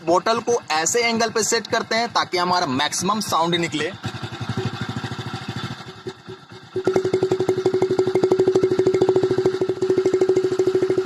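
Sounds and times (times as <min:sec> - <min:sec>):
motorcycle idling: 0:00.0 - 0:11.0.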